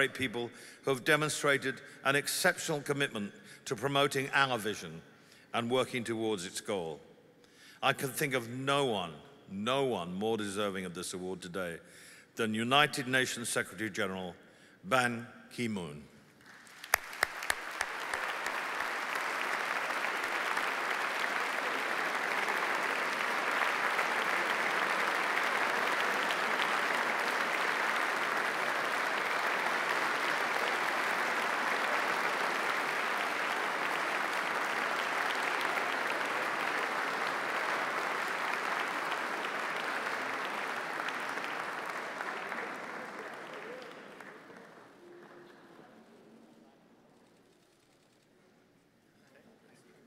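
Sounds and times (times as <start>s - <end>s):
audience applauding: 16.4s - 45.7s.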